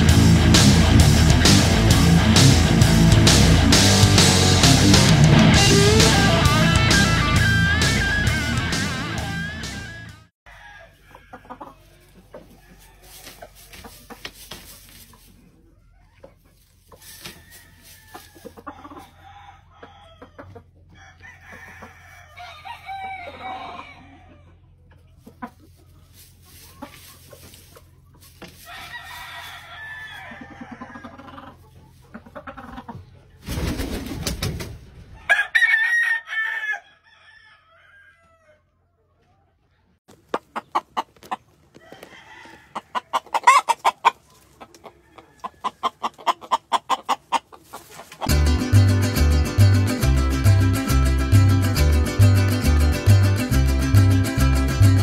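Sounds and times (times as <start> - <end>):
roosters clucking and crowing: 0.0 - 55.0.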